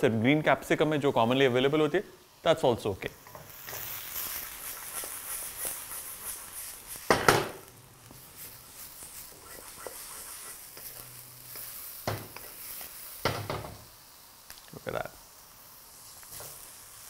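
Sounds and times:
vegetables sizzling in hot oil: 0:00.0 - 0:17.0
spatula scraping a wok: 0:03.5 - 0:07.4, 0:08.1 - 0:13.7.

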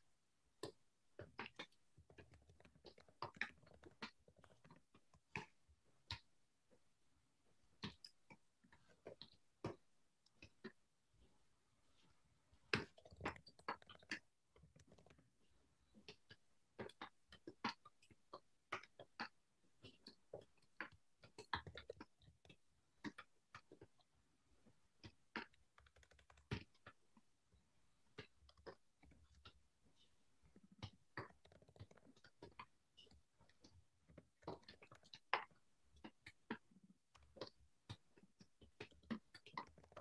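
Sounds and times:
faint computer keyboard typing: 0:00.7 - 0:06.3, 0:12.8 - 0:15.3, 0:25.0 - 0:27.2, 0:30.5 - 0:40.0.

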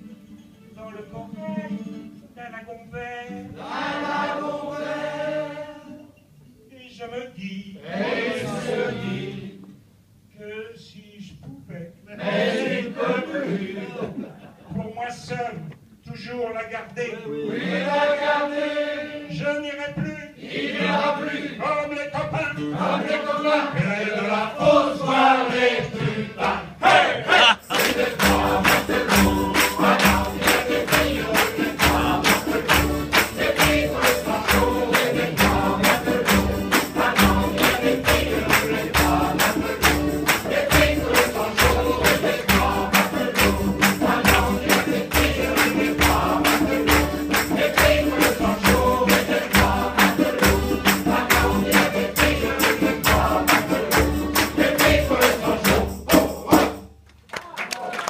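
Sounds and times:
mixed choir singing: 0:03.5 - 0:06.0, 0:07.8 - 0:09.6, 0:12.1 - 0:14.3, 0:17.3 - 0:19.4, 0:20.4 - 0:21.6, 0:22.7 - 0:56.8
hands clapping a beat: 0:27.5 - 0:58.0.

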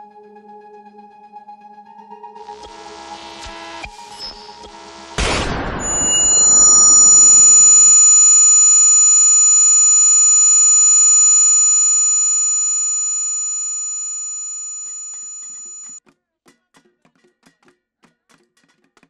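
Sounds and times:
high-pitched ear ringing: 0:05.8 - 0:16.0.

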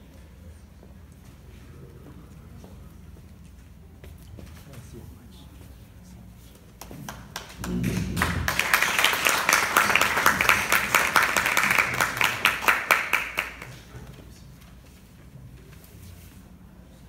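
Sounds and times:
group applause: 0:06.8 - 0:14.0.

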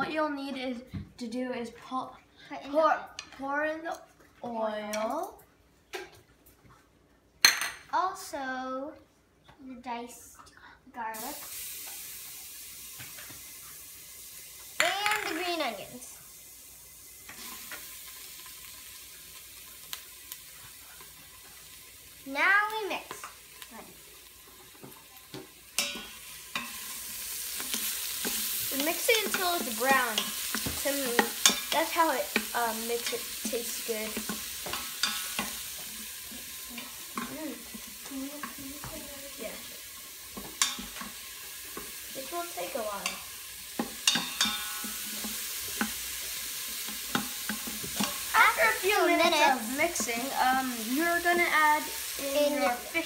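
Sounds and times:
garlic and onions sizzling in oil: 0:11.0 - 0:53.0.

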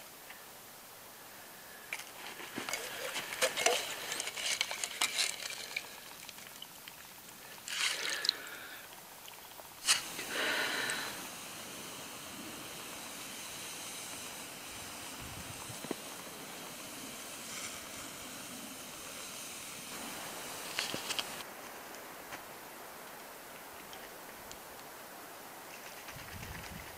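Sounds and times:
faint hiss: 0:00.0 - 0:26.9
plastic bottle crinkling: 0:01.9 - 0:08.6, 0:20.7 - 0:21.4
water pouring into pot: 0:02.6 - 0:21.4.

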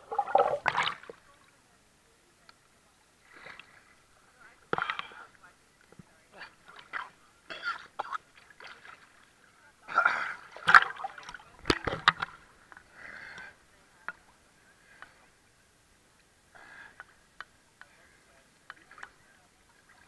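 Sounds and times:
water sloshing and splashing: 0:00.0 - 0:01.4, 0:08.0 - 0:12.9.

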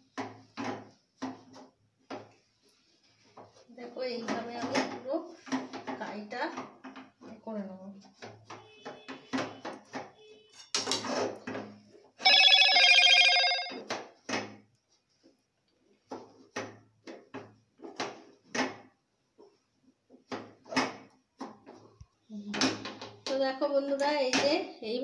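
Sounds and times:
loud electronic ring: 0:12.2 - 0:13.8.

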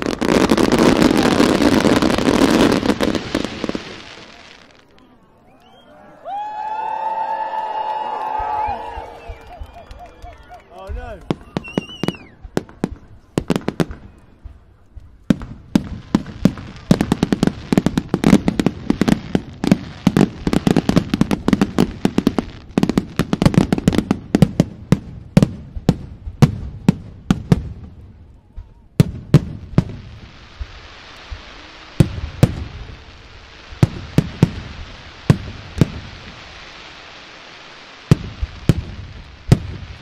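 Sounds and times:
hissing crackle: 0:27.5 - 0:40.0.

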